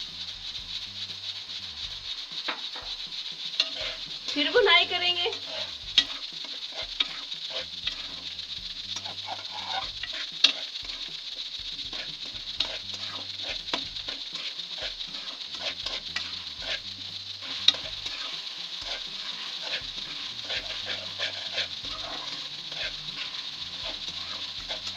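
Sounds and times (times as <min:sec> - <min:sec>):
food sizzling in a metal pan: 0:00.0 - 0:24.9
metal spoon scraping a pan: 0:00.0 - 0:24.9
spoon clicking against pan: 0:08.9 - 0:11.2.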